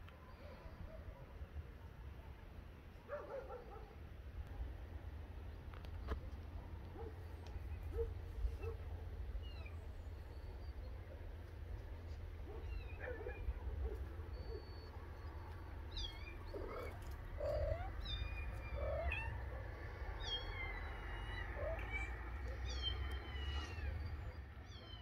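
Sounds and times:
kittens mewing: 16.0s - 25.0s.

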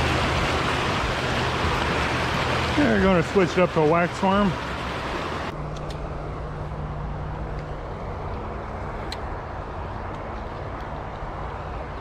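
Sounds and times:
flowing creek water: 0.0s - 6.2s
road traffic noise: 0.0s - 12.0s.

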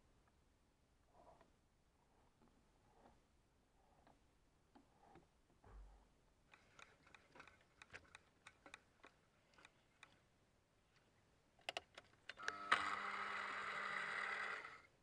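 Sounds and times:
machine motor whining hum: 12.4s - 14.9s.

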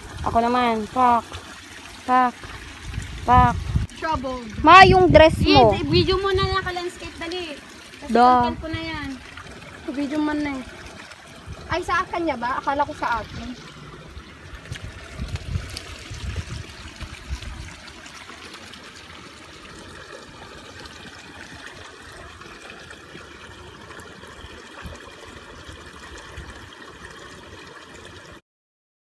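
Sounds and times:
stream trickling over stones: 0.0s - 28.4s.

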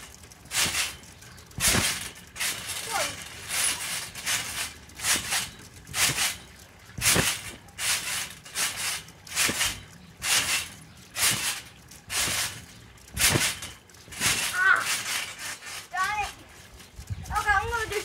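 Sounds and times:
trampoline mat bouncing: 0.0s - 18.0s.

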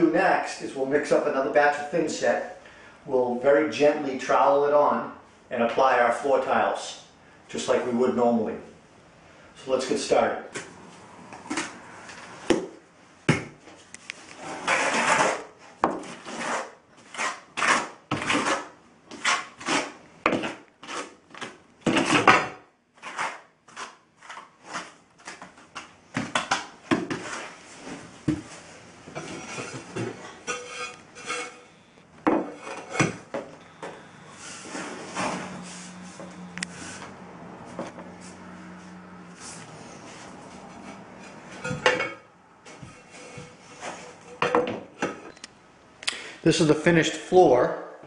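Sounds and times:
trowel scraping mortar: 14.3s - 22.3s, 23.0s - 25.5s, 27.0s - 27.7s, 29.2s - 31.8s.

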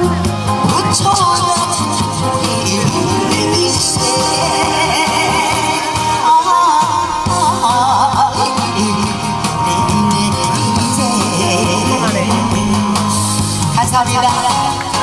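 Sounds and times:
amplified backing music: 0.0s - 15.0s
woman singing into microphone: 0.6s - 9.1s.

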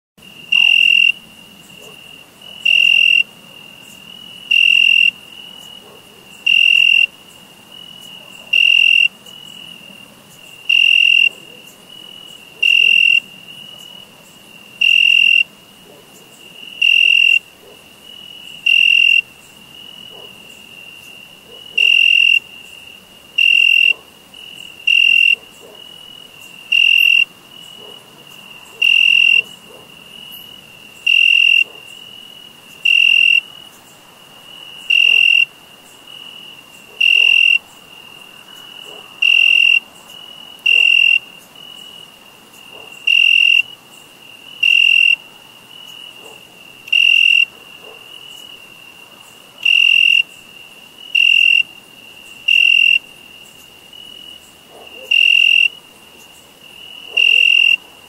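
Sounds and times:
crickets chirping: 0.2s - 58.0s
faint steady cricket trill: 0.2s - 58.0s.

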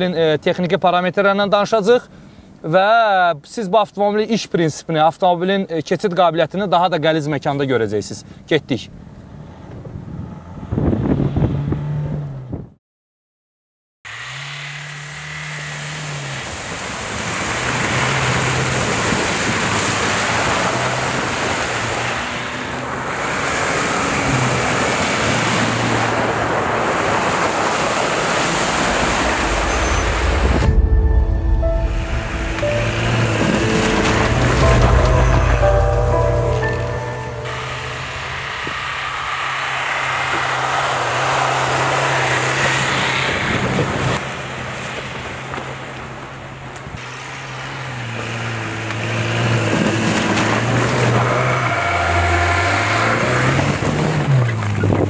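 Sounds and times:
engine hum: 14.1s - 55.0s
tyres churning through slush: 15.1s - 30.2s, 47.0s - 54.8s.

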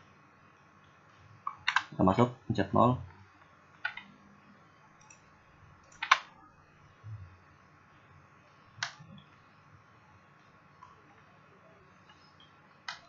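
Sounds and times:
computer clicks: 1.4s - 2.0s, 3.8s - 4.1s, 5.0s - 6.3s, 8.8s - 9.4s, 12.0s - 13.0s.

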